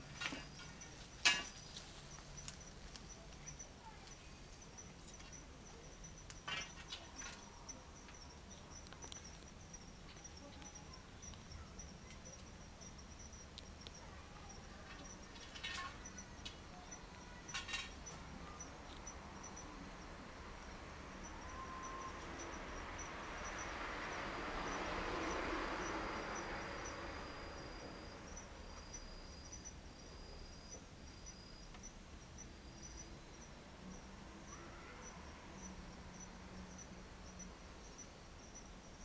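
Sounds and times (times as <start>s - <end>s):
clicks and rustles: 0.0s - 12.6s, 13.3s - 19.6s
insect trilling: 0.0s - 39.0s.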